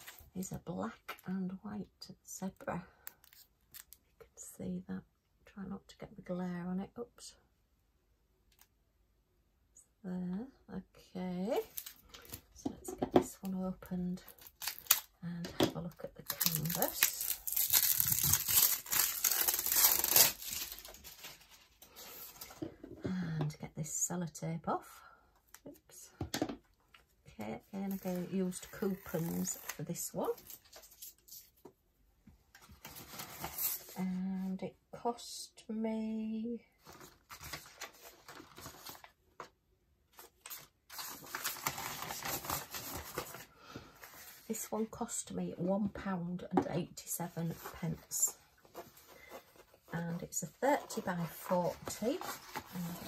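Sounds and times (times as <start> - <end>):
plastic wrapping crinkling: 14.2 - 15.1, 16.2 - 21.8.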